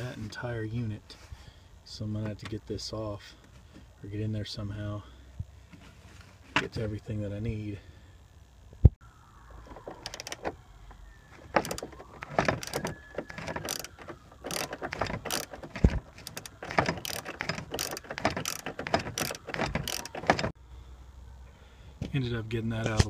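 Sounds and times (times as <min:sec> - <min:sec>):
ratchet wrench clicking: 0:11.6 - 0:20.5.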